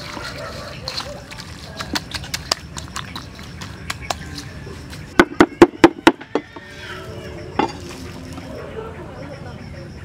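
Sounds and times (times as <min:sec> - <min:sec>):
hands mixing food wet clicks: 0:00.0 - 0:05.2
cleaver chopping on wooden board: 0:05.2 - 0:06.5.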